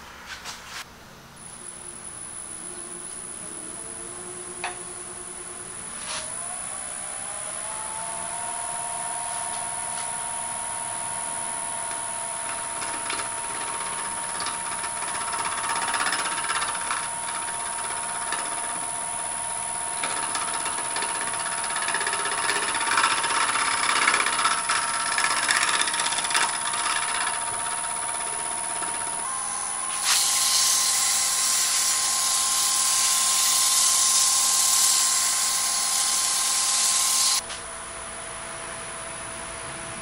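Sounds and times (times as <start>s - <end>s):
lathe motor whine: 1.9s - 37.5s
turning tool cutting wood: 11.6s - 37.4s.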